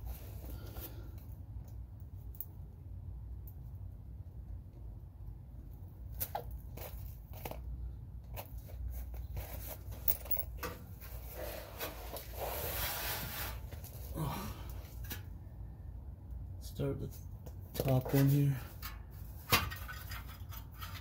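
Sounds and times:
low steady hum: 0:00.0 - 0:21.0
rubbing rustle: 0:11.0 - 0:14.1
light clicks and scrapes of bolts: 0:17.2 - 0:21.0.

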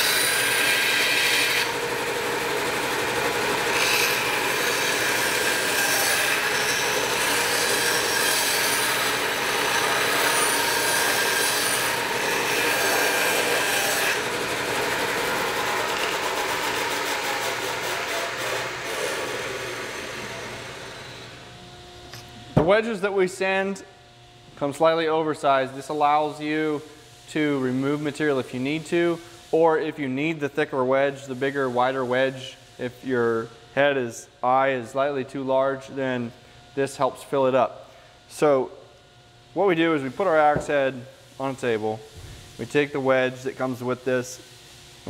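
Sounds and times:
bandsaw cutting wood: 0:00.0 - 0:21.2.

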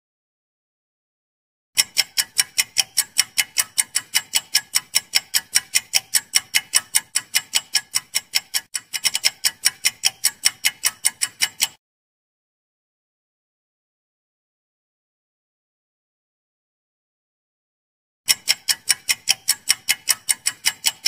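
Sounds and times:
fast clock ticking: 0:01.8 - 0:11.8, 0:18.3 - 0:21.0.

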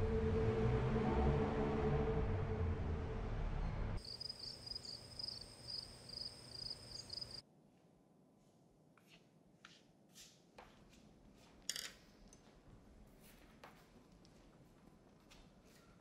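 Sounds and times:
crickets chirping: 0:04.0 - 0:07.4.

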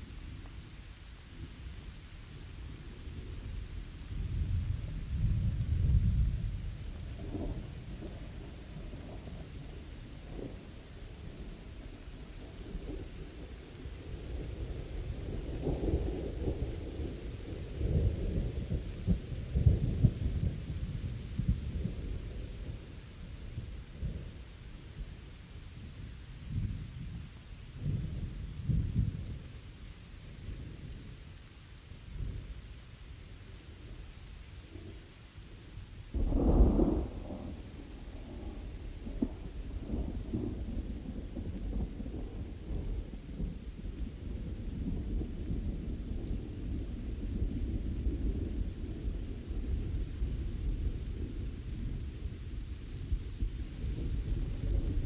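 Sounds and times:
steady rain falling: 0:00.0 - 0:55.0
thunder rolling: 0:36.2 - 0:55.0.

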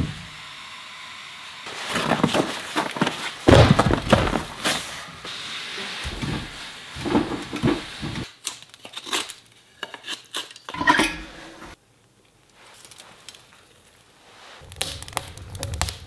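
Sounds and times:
firewood logs knocking together: 0:02.0 - 0:04.6.

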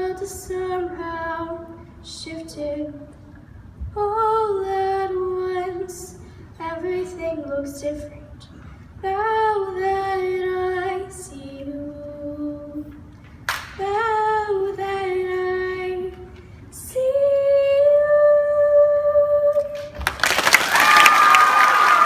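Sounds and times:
girl singing: 0:00.0 - 0:13.1, 0:13.8 - 0:19.8
audience applause and cheering: 0:19.8 - 0:22.0.

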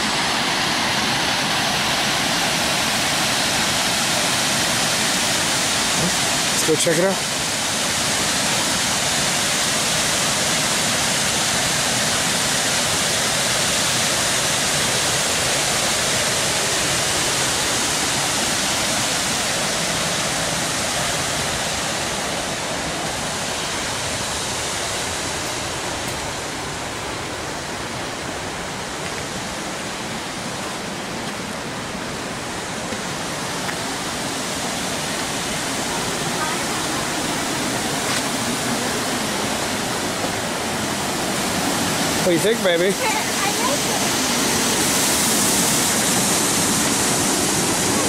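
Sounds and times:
water pouring over a spillway: 0:00.0 - 0:28.2.

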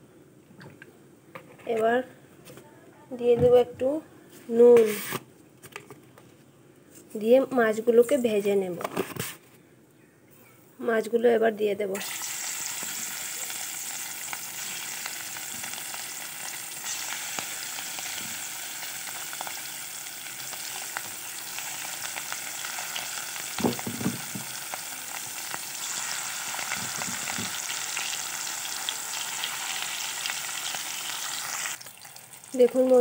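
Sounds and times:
fish sizzling in hot oil: 0:12.0 - 0:33.0.

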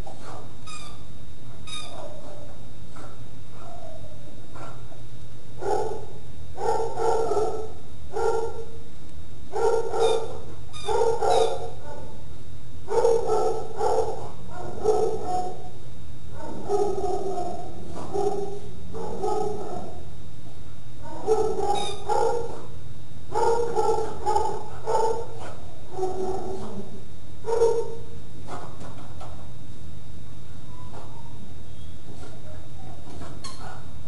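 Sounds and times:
steady low hum: 0:00.0 - 0:34.0
dog barking: 0:00.1 - 0:00.6, 0:01.5 - 0:05.0, 0:05.6 - 0:08.8, 0:09.5 - 0:12.2, 0:12.9 - 0:15.8, 0:16.4 - 0:20.1, 0:21.0 - 0:28.9, 0:30.7 - 0:31.4, 0:32.1 - 0:34.0.

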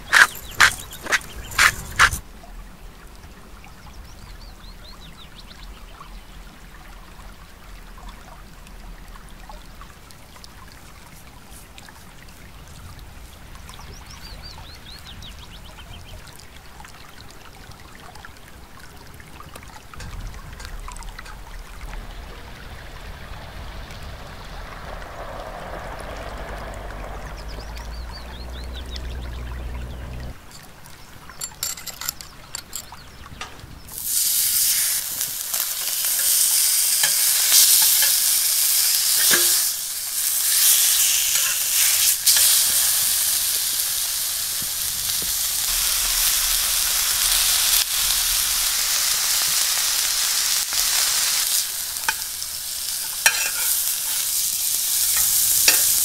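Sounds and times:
stream trickling over stones: 0:00.0 - 0:56.0
low rumble: 0:20.1 - 0:30.4.

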